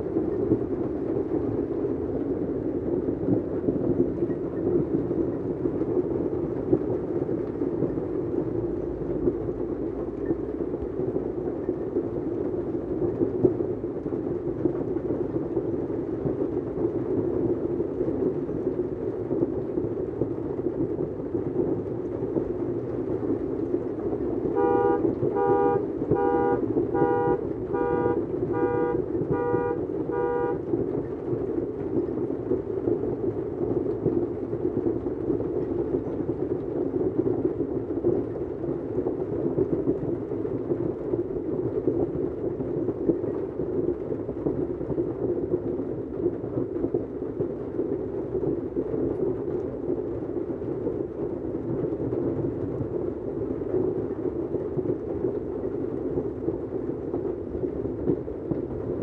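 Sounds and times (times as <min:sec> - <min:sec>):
car alarm horn honking: 0:24.6 - 0:30.6.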